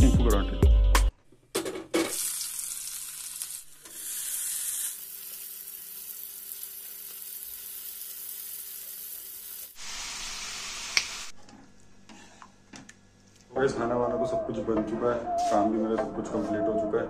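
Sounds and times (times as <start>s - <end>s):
masala sizzling in hot oil: 2.1s - 11.4s.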